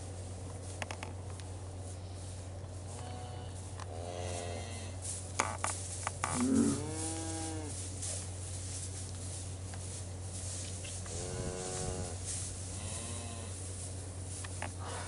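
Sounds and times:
cattle mooing: 6.2 - 7.7, 11.2 - 12.2.

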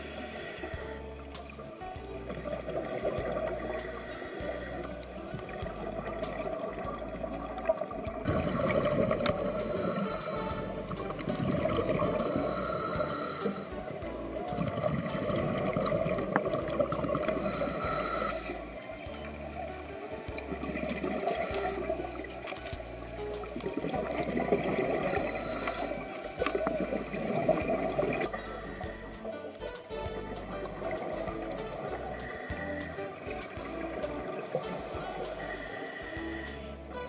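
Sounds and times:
background music with bass line: 0.0 - 37.0
underwater bubbles gurgling: 0.0 - 37.0
whale call: 8.2 - 13.8, 31.9 - 33.4, 34.5 - 36.9.

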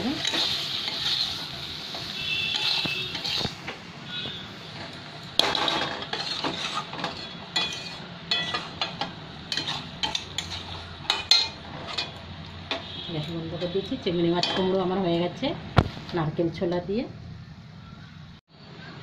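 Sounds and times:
food sizzling: 0.0 - 16.1
spatula scraping metal pan: 0.1 - 3.6, 4.8 - 13.8
spatula clinking against pan: 5.4 - 12.8.

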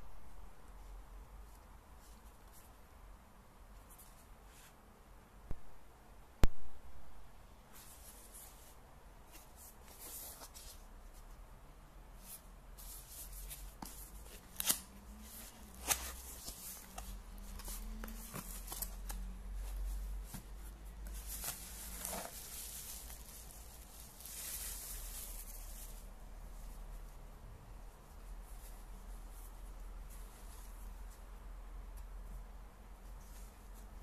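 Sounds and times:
bubble wrap crinkling: 12.2 - 27.1
cardboard box rustling and scraping: 15.2 - 25.6.

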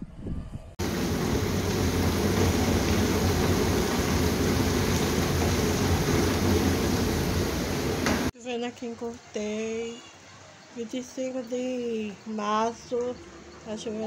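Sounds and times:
heavy rain on concrete: 0.8 - 8.3.

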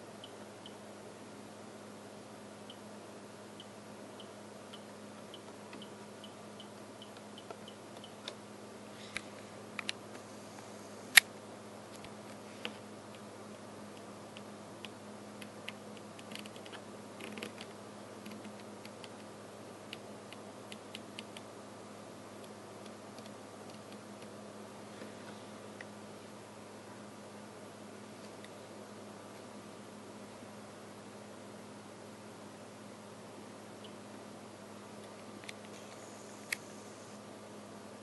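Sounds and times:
steady low hum: 0.0 - 38.0.

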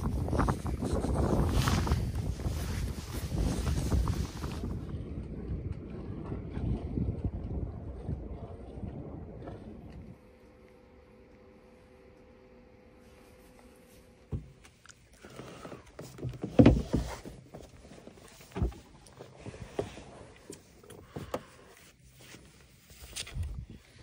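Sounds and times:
knocks and thumps: 16.0 - 17.3.

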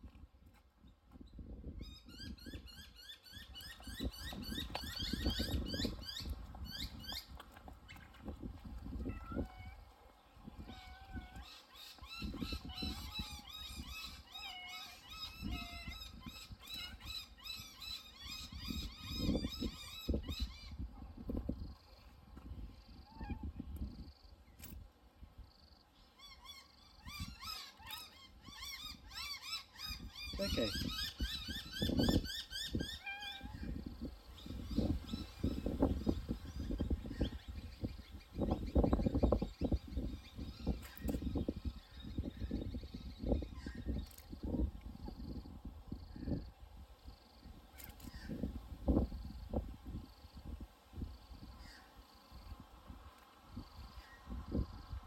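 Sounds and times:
birds chirping: 1.3 - 8.4.

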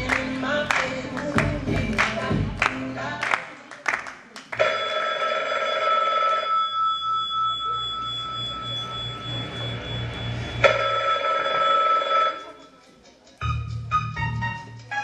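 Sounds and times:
telephone ringing: 4.6 - 12.7.

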